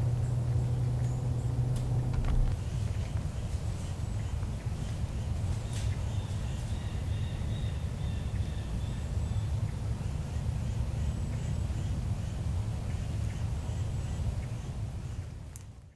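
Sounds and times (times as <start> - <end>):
steady low rumble: 0.0 - 5.4.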